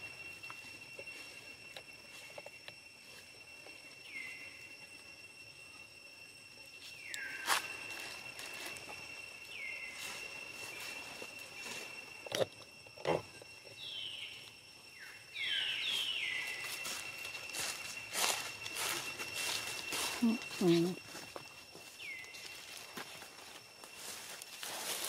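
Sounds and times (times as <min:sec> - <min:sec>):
insect drone: 0:00.0 - 0:25.0
whistled bird calls: 0:15.0 - 0:17.2.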